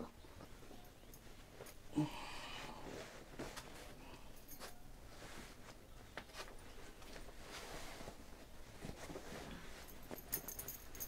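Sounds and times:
cloth rustling: 2.7 - 11.0.

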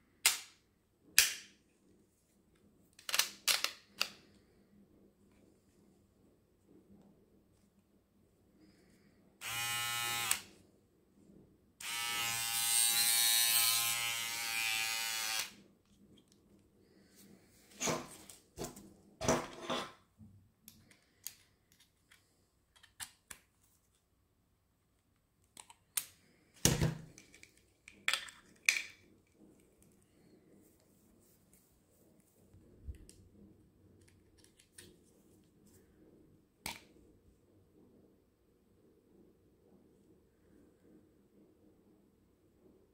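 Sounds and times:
beard trimmer motor buzzing: 9.4 - 10.4, 11.8 - 15.5.

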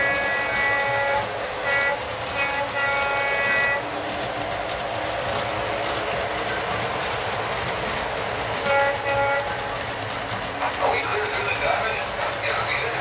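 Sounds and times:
model train horn: 0.0 - 3.9, 8.6 - 10.0
model train wheels rumbling: 0.0 - 13.0.

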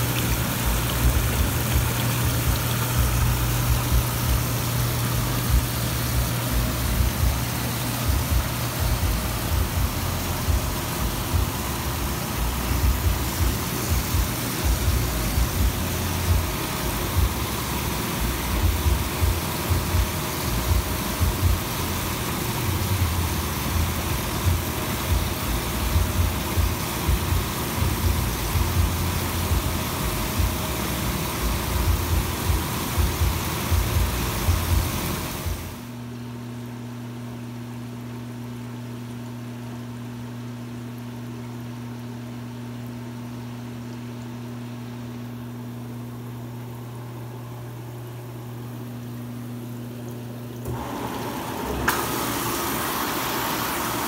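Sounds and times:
water churning and splashing: 0.0 - 29.6
low pump rumble: 0.0 - 36.8.

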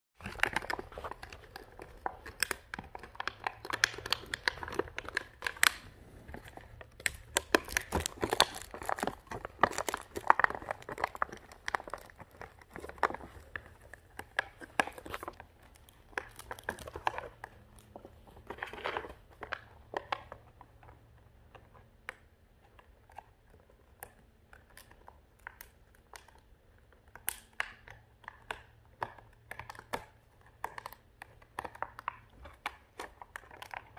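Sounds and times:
plastic packaging crinkling: 0.2 - 20.4.

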